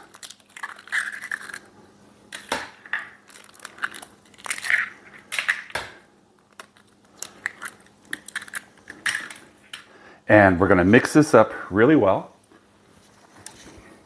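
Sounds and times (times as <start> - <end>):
eggshells cracking on steel bowl: 0.0 - 9.9.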